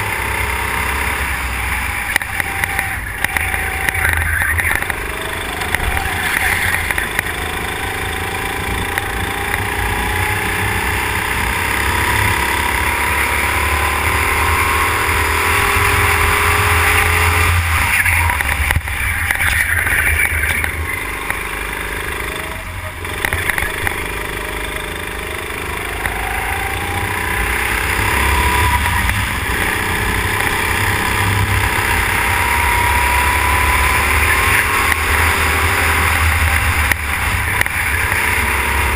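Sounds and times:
go-kart engine revving: 0.0s - 38.9s.

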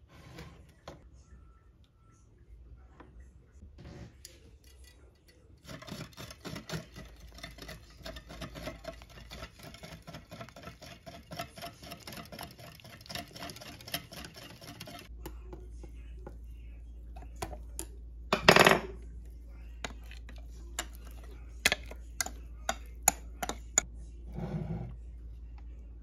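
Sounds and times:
wire whisk beating in a bowl: 5.6s - 15.5s, 20.7s - 23.8s.

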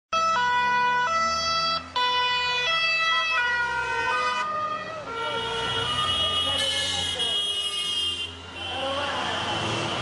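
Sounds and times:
two-tone emergency siren: 0.1s - 6.7s.

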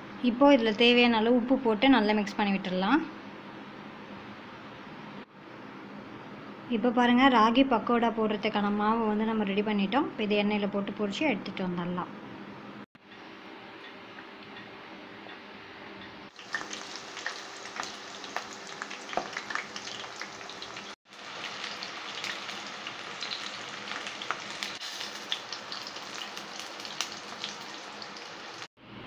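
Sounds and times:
batter sizzling in hot oil: 16.3s - 28.7s.

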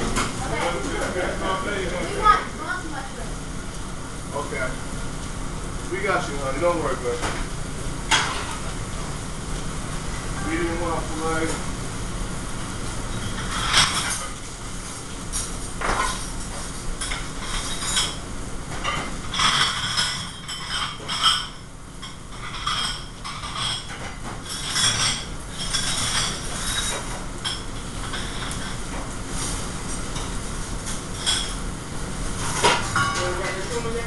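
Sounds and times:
steady low hum: 0.0s - 34.0s
plates and pans clattering: 13.2s - 14.4s, 17.0s - 28.8s, 32.4s - 33.8s.

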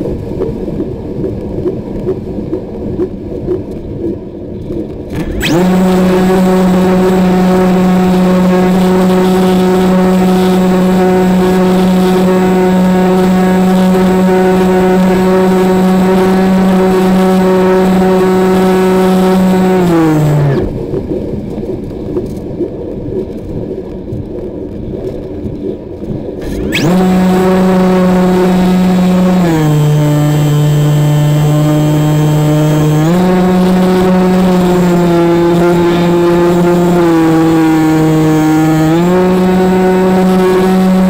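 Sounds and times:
model plane motor buzzing: 5.1s - 20.8s, 26.4s - 41.0s.

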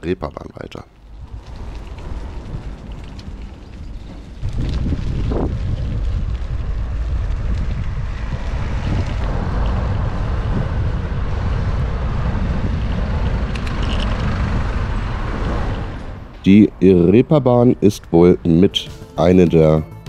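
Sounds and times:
wind buffeting microphone: 0.0s - 18.5s.

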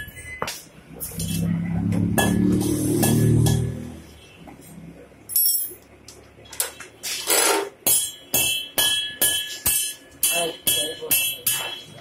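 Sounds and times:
hammer strikes on steel: 1.9s - 4.0s, 7.3s - 12.0s.

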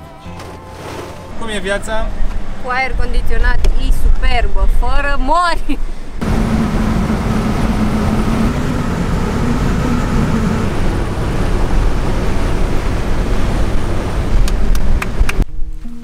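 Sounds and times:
engine and road noise: 0.0s - 16.0s
low hum: 5.8s - 16.0s.

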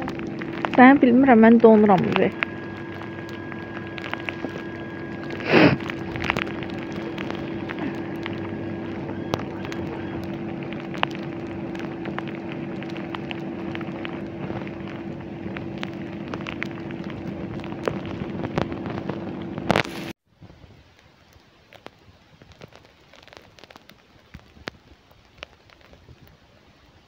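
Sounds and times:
light crackles and ticks: 0.0s - 20.1s, 20.8s - 27.0s
low hum: 0.0s - 20.2s
noisy hiss: 0.0s - 27.0s.

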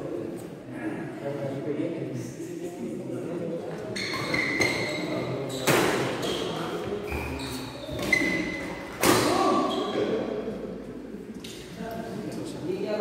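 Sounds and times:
shoes squeaking on court: 3.9s - 10.1s.

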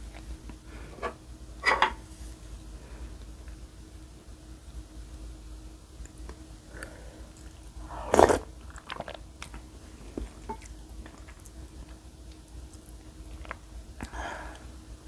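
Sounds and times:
chewing: 6.0s - 14.6s
slurping soup from a spoon: 8.0s - 9.2s.

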